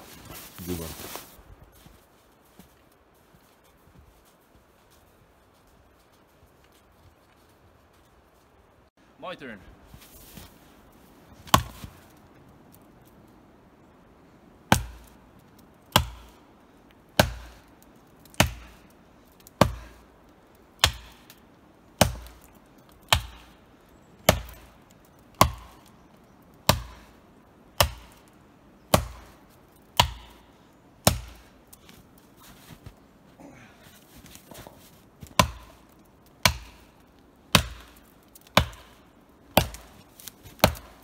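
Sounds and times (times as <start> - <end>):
hatchet chopping tree trunk: 11.4 - 12.0, 14.7 - 15.2, 15.9 - 16.4, 17.2 - 20.1, 20.8 - 21.4, 22.0 - 23.6, 24.2 - 26.0, 26.6 - 27.2, 27.8 - 31.6, 35.2 - 41.0.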